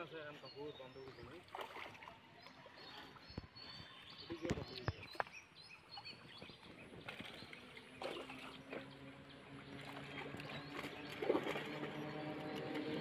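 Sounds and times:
water sloshing and splashing: 0:00.8 - 0:13.0
sharp splashes: 0:01.3 - 0:02.2, 0:07.0 - 0:13.0
motor hum: 0:05.7 - 0:13.0.

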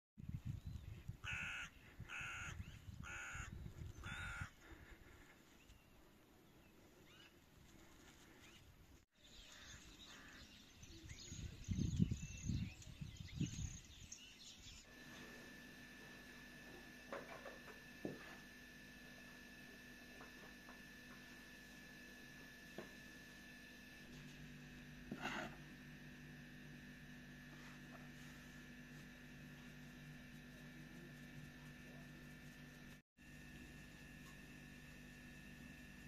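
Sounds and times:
wind on microphone: 0:00.2 - 0:04.5, 0:11.3 - 0:13.9
bird calling: 0:01.2 - 0:04.7.

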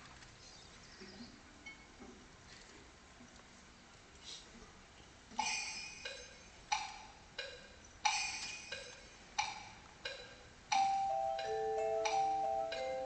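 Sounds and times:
wood block strikes: 0:05.3 - 0:13.0.

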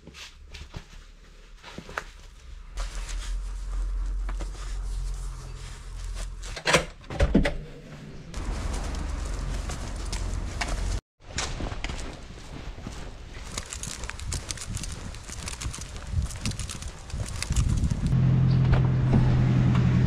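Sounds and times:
steady low rumble: 0:08.0 - 0:11.0, 0:13.4 - 0:20.0
footsteps on asphalt: 0:11.6 - 0:18.2
sneakers rustling being laced: 0:11.8 - 0:18.2.

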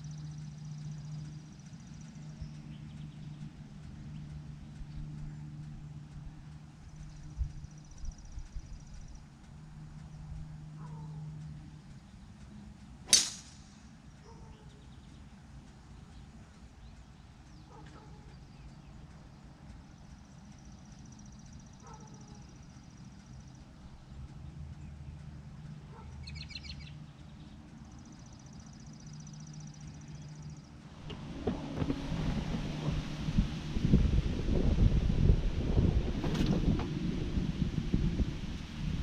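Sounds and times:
birds chirping: 0:00.0 - 0:39.0
low steady hum: 0:00.0 - 0:39.0
golf club striking ball: 0:13.0 - 0:13.8.

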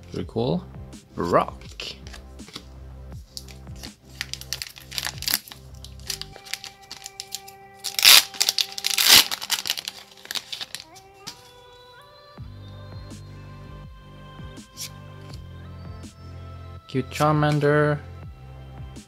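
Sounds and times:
background music: 0:00.0 - 0:19.0
wrapper ripping open: 0:03.3 - 0:11.5
wrapper crinkling: 0:03.3 - 0:11.6.

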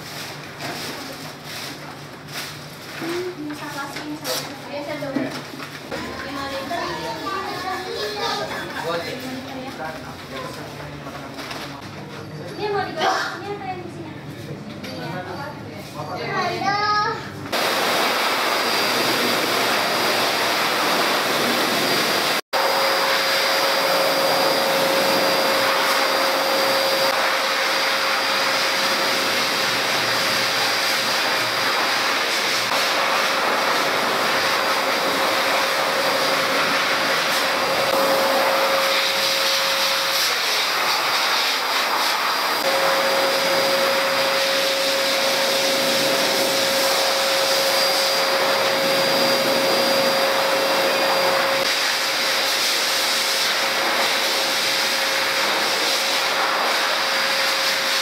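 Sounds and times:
pet grooming blower running: 0:05.9 - 0:11.8, 0:17.5 - 0:58.0.

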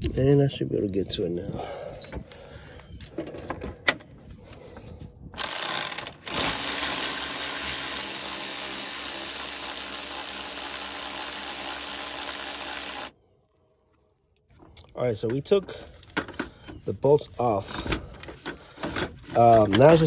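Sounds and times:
cordless electric ratchet running: 0:05.4 - 0:13.1.

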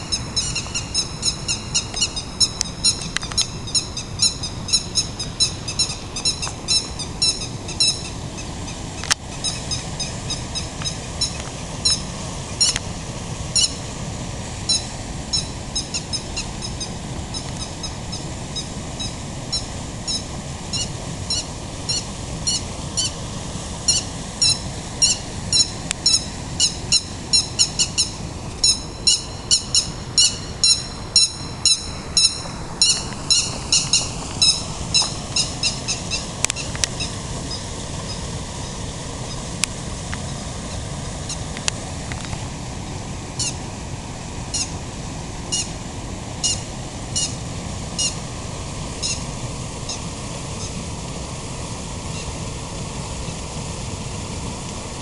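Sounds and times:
high-pitched chirping calls: 0:00.0 - 0:12.8, 0:13.6 - 0:13.8, 0:14.7 - 0:23.2, 0:23.9 - 0:39.5, 0:44.5 - 0:44.7, 0:49.0 - 0:49.3
low steady rumble: 0:00.0 - 0:55.0.

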